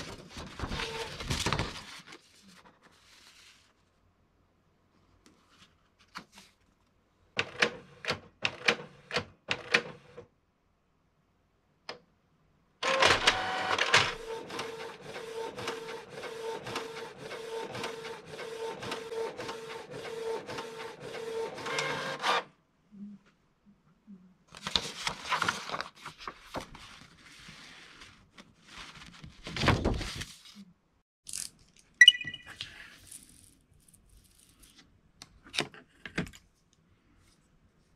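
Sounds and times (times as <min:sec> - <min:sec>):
printer whirring and clicking: 0:12.8 - 0:22.5.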